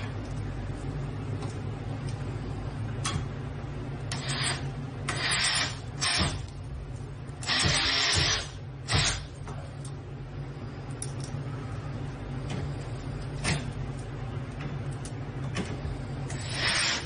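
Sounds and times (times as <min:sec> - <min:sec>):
cordless drill driving screws: 0:07.5 - 0:09.1, 0:16.4 - 0:17.0.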